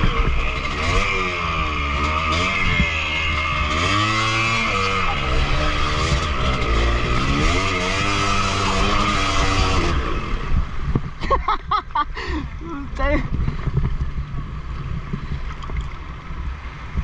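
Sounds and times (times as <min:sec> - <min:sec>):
dirt bike engine revving: 0:00.0 - 0:10.8.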